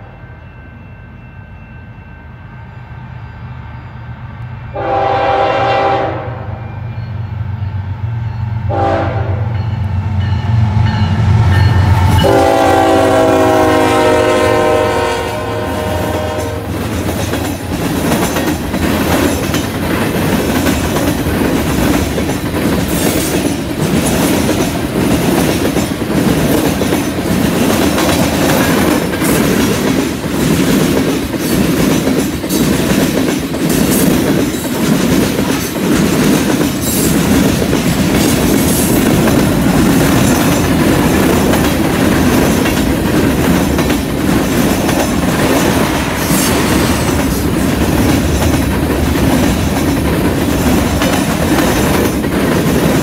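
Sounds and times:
locomotive horn blasts: 4.7 - 6.7, 8.7 - 9.6, 12.2 - 16.8
train wheels clacking over rail joints: 16.2 - 53.0.

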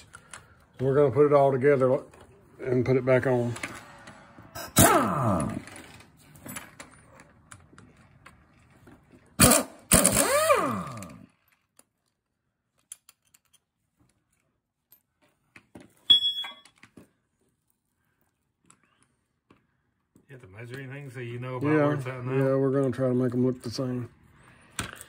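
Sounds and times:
power tool motor spinning: 9.4 - 11.3.

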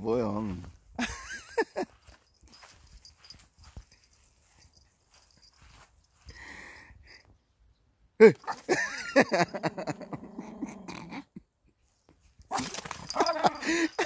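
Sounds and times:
dog growling: 9.7 - 11.3.

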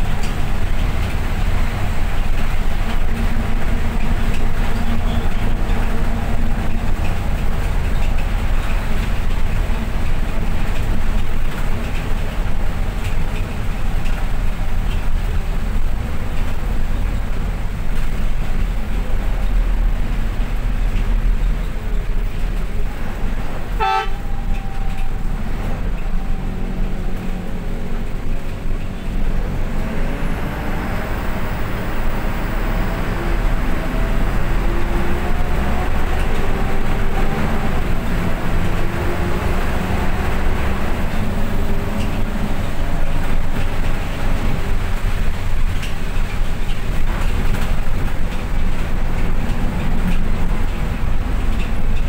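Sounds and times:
vehicle engine and road rumble: 0.0 - 52.0
short horn toot: 23.8 - 25.0.

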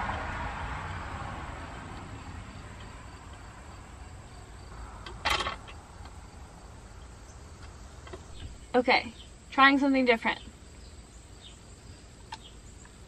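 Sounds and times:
insects chirping: 0.0 - 13.0
sharp clatter: 5.0 - 5.8.

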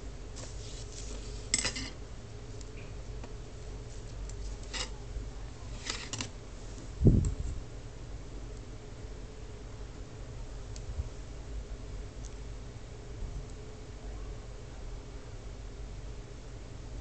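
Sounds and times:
steady low hum: 0.0 - 17.0
crackling clicks and rustles: 2.6 - 5.0, 5.7 - 7.4.

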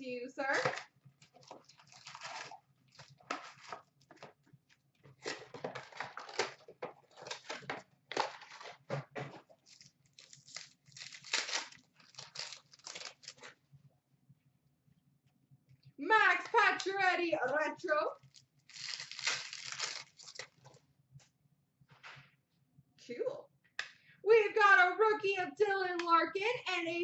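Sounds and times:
wrappers crinkling and rustling: 0.5 - 4.3, 5.1 - 13.5, 18.2 - 20.8
plastic shrink-wrap tearing: 0.6 - 3.8, 5.2 - 7.7, 9.6 - 13.5, 18.2 - 20.7.

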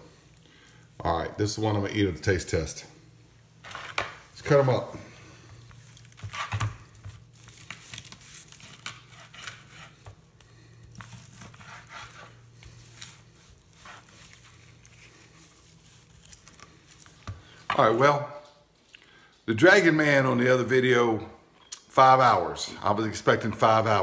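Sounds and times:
knife slicing ribs: 6.1 - 10.2, 10.9 - 14.7.

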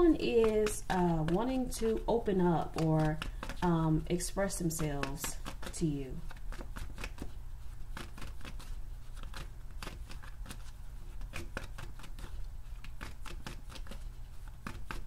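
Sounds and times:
cards being shuffled: 0.0 - 15.0
low steady hum: 0.0 - 15.0.

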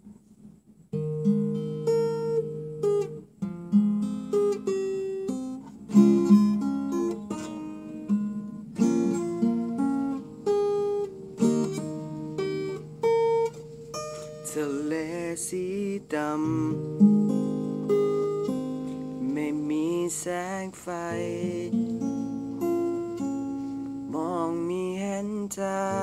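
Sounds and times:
classical guitar playing: 0.4 - 26.0.

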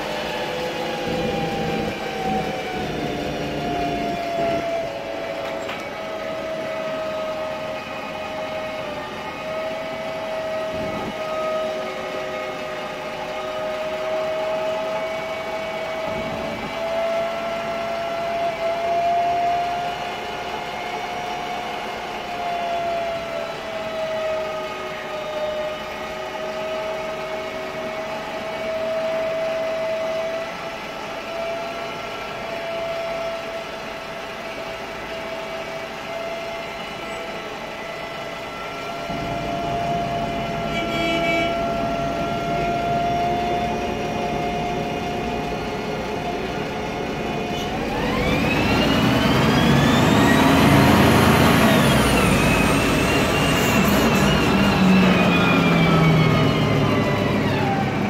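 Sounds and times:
bus gearbox whine: 0.0 - 11.6, 27.7 - 58.0
engine and road rumble: 0.0 - 58.0.

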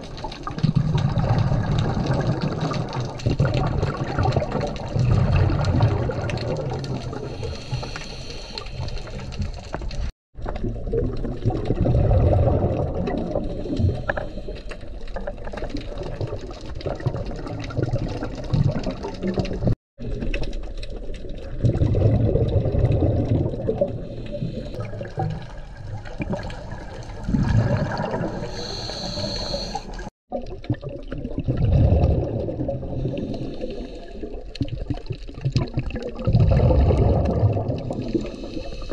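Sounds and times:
exhaled bubbles rushing: 0.0 - 38.9
regulator hiss on inhale: 7.2 - 9.4, 13.6 - 14.8, 24.0 - 24.8, 28.2 - 30.1, 33.0 - 34.4, 38.2 - 38.9.

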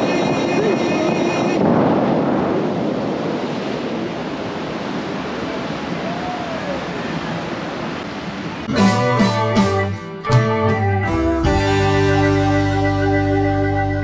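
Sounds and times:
fountain show music: 8.6 - 14.0.

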